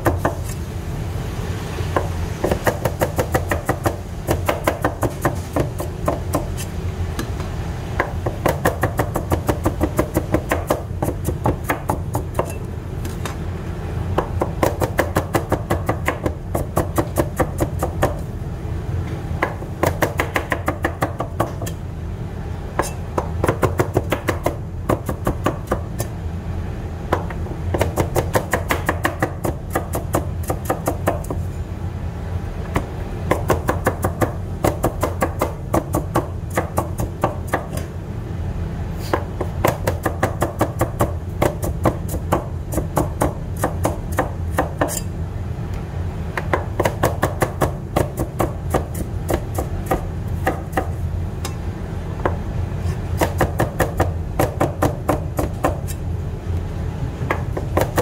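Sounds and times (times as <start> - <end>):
steady low hum: 0.0 - 58.0
knife chopping on cutting board: 39.1 - 45.1, 52.8 - 56.0.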